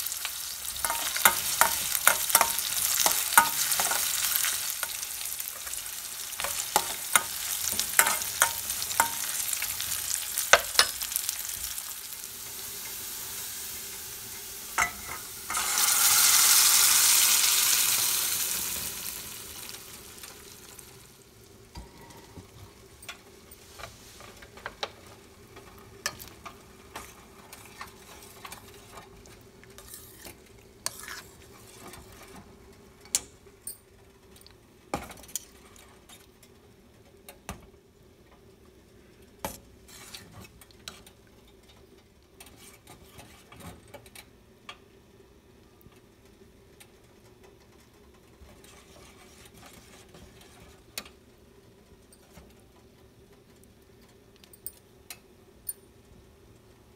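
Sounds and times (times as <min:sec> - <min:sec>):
dal sizzling in hot oil: 0:00.0 - 0:32.3
spoon clinking and scraping a pan: 0:00.6 - 0:11.7, 0:14.8 - 0:16.6, 0:29.8 - 0:32.0.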